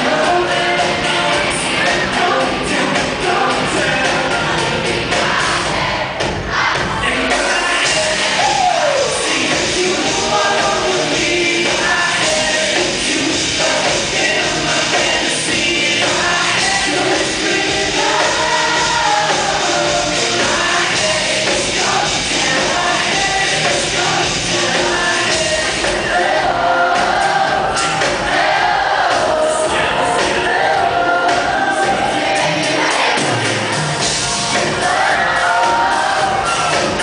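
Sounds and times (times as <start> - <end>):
amplified band with drums: 0.0 - 37.0.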